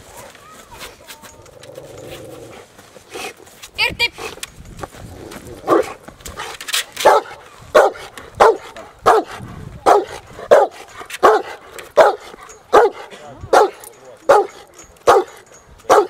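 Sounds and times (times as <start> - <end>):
dog barking: 5.7 - 6.0, 7.0 - 16.0.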